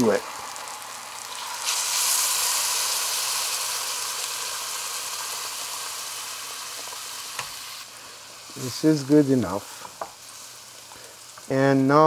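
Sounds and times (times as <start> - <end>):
hot pan hissing and sizzling: 0.0 - 12.0
water pouring: 1.3 - 2.7.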